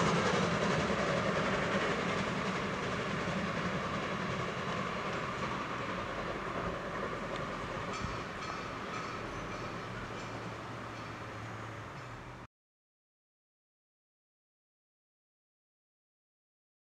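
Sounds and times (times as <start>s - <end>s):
train wheels rumbling on rails: 0.0s - 12.5s.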